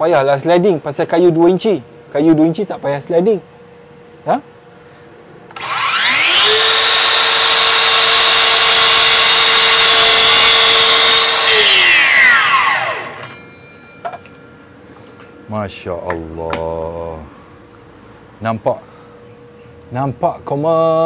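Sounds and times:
mitre saw motor whining: 5.5 - 13.5
saw blade cutting wood: 5.6 - 13.4.

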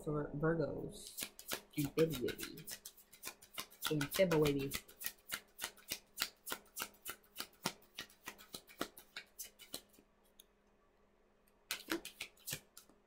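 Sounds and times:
cards being shuffled: 1.0 - 10.0, 11.7 - 13.0.

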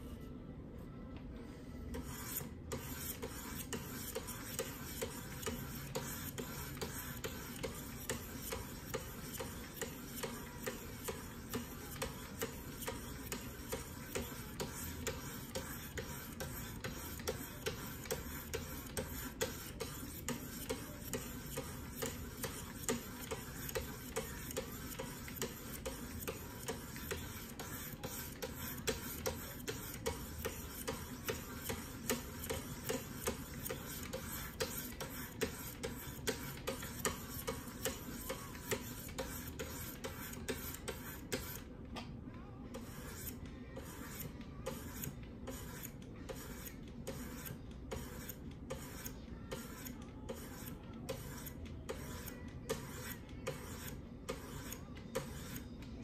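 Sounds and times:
sharpening stones scraping knife blade: 42.8 - 55.7.

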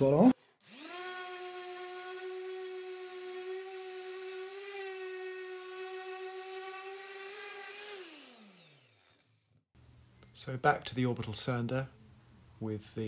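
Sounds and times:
orbital sander whining: 0.0 - 9.7.

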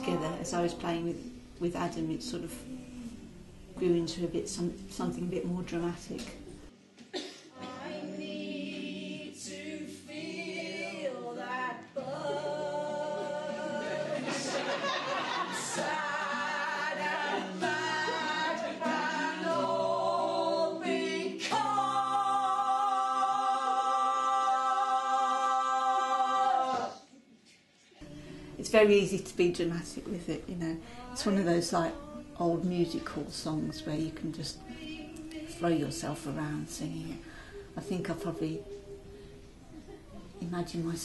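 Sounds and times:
person singing with vibrato: 7.5 - 27.0, 30.8 - 36.0.

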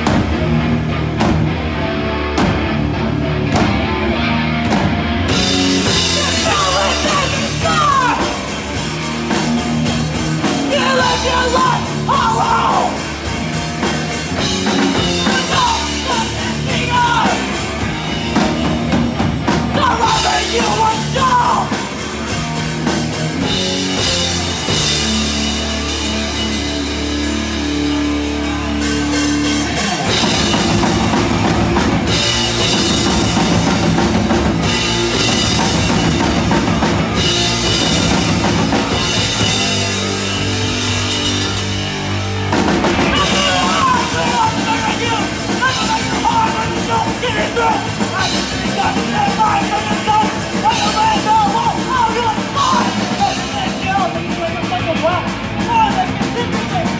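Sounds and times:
bass guitar: 0.0 - 56.9
drum kit: 0.0 - 56.9
electric guitar: 0.0 - 56.9
shouted vocals: 5.7 - 8.9, 10.4 - 13.2, 14.7 - 17.9, 19.7 - 22.0, 43.0 - 56.9.

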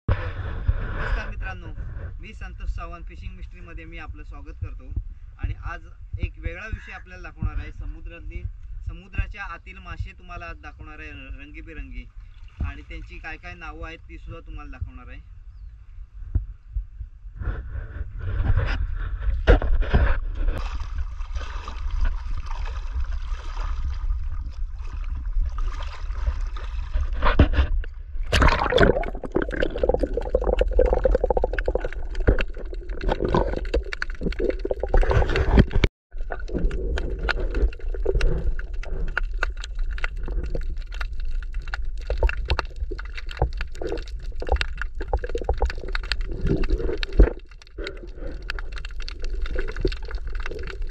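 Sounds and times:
muffled underwater rumble: 14.4 - 50.9
clicks and scrapes: 17.5 - 20.6, 26.8 - 28.4, 29.1 - 50.9
water gurgling: 20.5 - 50.9.

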